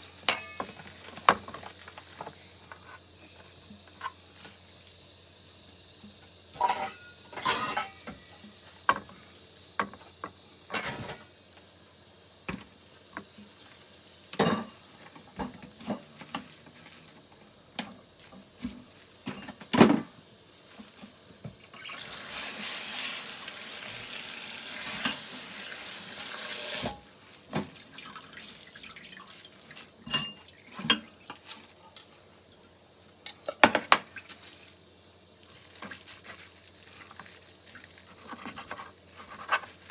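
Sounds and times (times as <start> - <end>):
dishes and utensils clinking: 0.2 - 0.8, 6.6 - 8.3, 10.7 - 11.2, 14.3 - 16.1, 30.0 - 32.1
kitchen tap running: 21.7 - 31.4.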